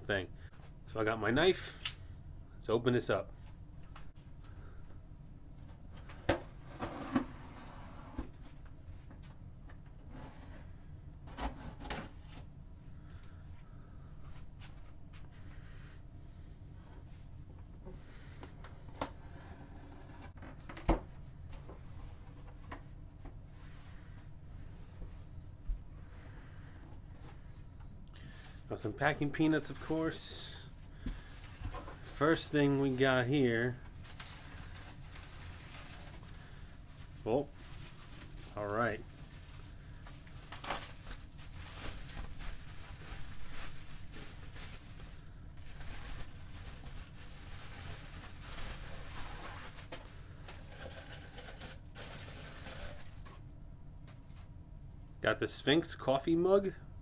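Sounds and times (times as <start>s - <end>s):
cardboard rustling and scraping: 6.2s - 8.5s, 37.6s - 53.4s
bubble wrap crinkling: 31.2s - 53.5s.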